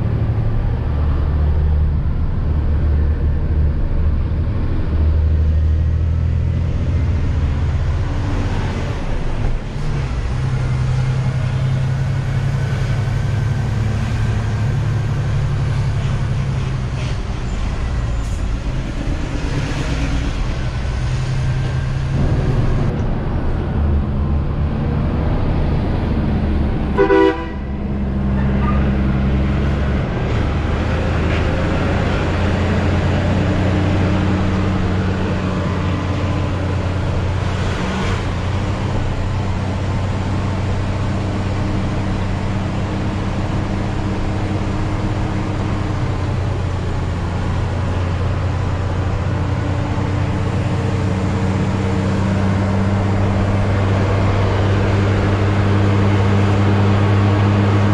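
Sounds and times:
truck diesel engine running: 0.0 - 57.9
short horn toot: 27.0 - 27.7.

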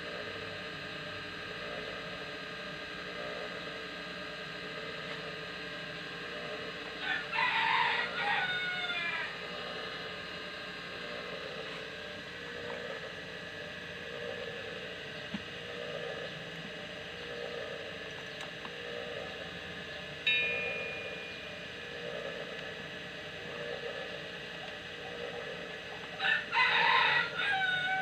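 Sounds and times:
steady background hum: 0.0 - 28.0
rooster crowing: 7.0 - 9.4, 26.2 - 28.0.

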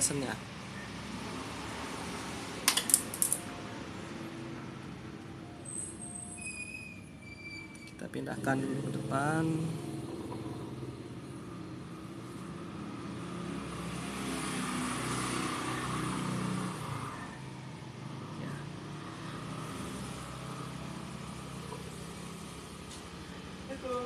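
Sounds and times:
vehicle engine passing by: 8.1 - 24.0.

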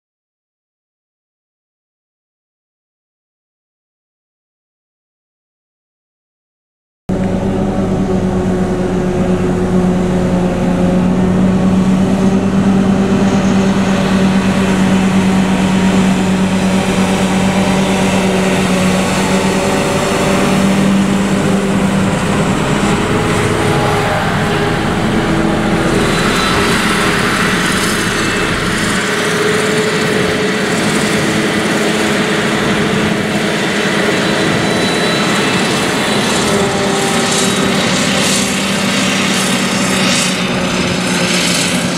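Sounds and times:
harvester and tractor engine drone: 7.1 - 41.9
machinery whine: 7.1 - 41.9.

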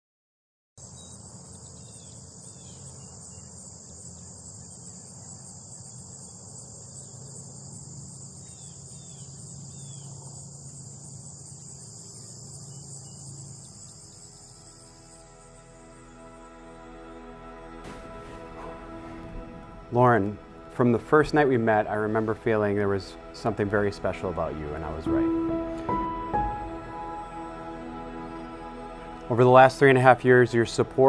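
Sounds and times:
bird chirps: 0.8 - 16.6
insect chorus: 0.8 - 31.0
low hum: 12.0 - 29.4.

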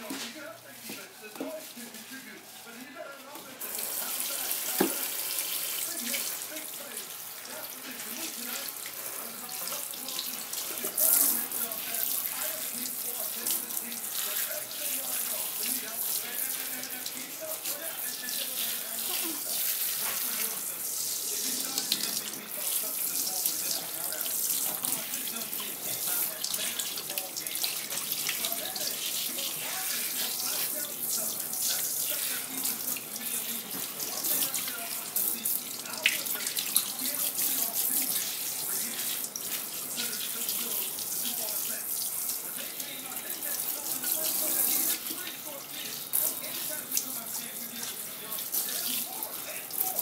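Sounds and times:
faucet sprayer running: 3.6 - 50.0
water splashing into steel sink: 3.7 - 6.4.

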